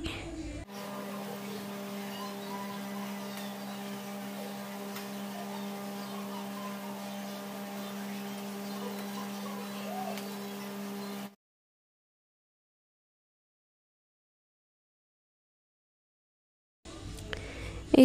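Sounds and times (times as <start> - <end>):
low hum: 0.0 - 11.4.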